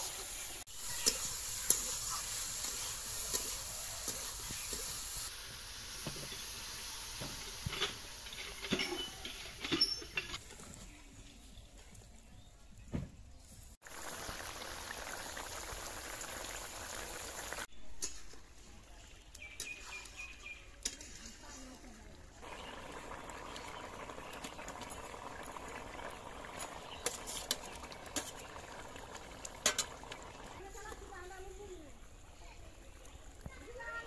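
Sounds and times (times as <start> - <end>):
curry boiling and bubbling: 13.8 - 17.7, 21.4 - 34.0.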